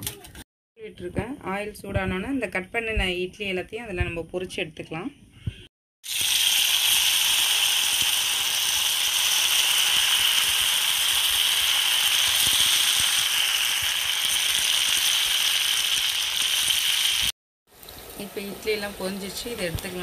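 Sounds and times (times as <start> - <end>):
deep-frying in hot oil: 6.0 - 20.0.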